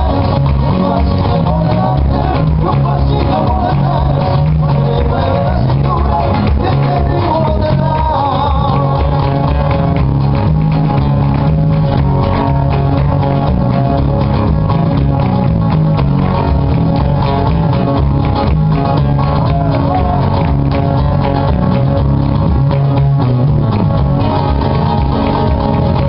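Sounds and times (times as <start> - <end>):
acoustic guitars strumming: 0.0 - 26.0
bass: 0.0 - 26.0
handclaps: 0.0 - 26.0.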